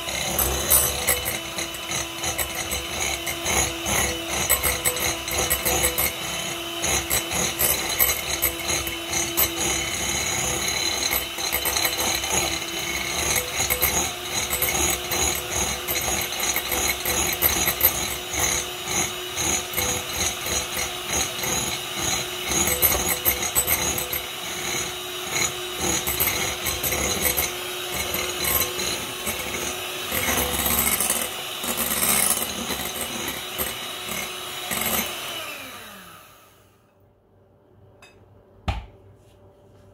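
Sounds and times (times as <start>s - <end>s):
electric hand mixer whirring: 0.0s - 36.7s.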